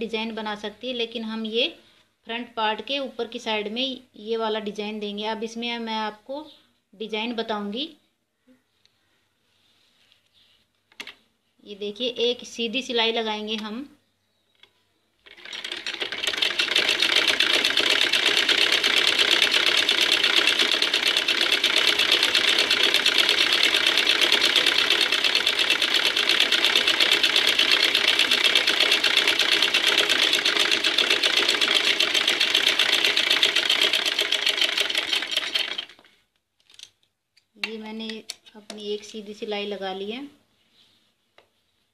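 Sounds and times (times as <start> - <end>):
sewing machine stitching: 15.2 - 36.1.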